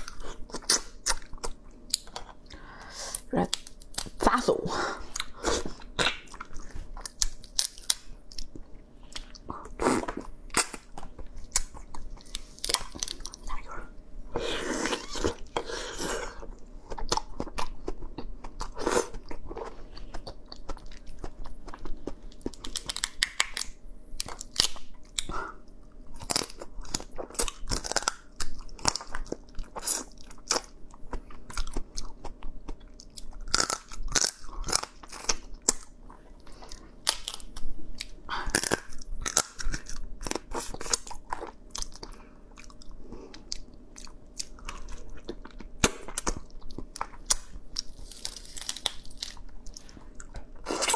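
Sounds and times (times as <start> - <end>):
crab shell crunching in teeth: 20.4 - 25.3, 26.2 - 30.8, 31.4 - 36.0, 37.0 - 50.9.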